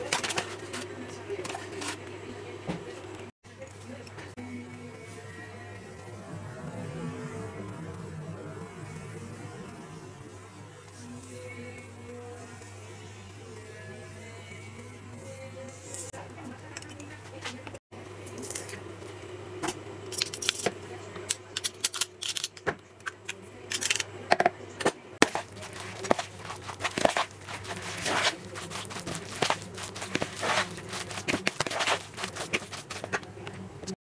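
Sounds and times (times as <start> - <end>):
fork scraping plastic bowl: 25.2 - 33.3.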